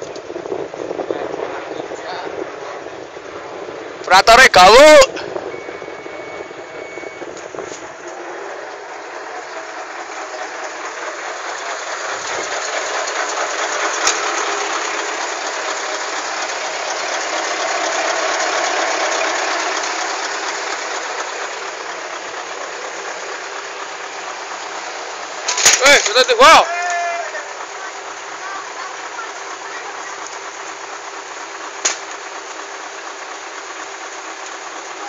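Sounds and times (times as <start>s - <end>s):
heavy diesel machinery running: 0.0s - 35.0s
sharp click: 31.8s - 32.2s.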